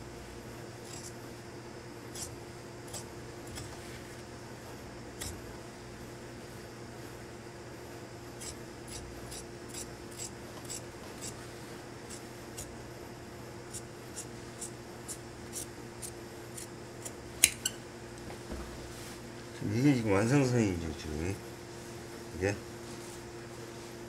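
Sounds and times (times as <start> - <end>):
shears snipping fabric: 0.8 - 1.2, 2.1 - 4.3, 8.4 - 12.8, 13.7 - 17.7
shear blades clicking: 17.4 - 17.8.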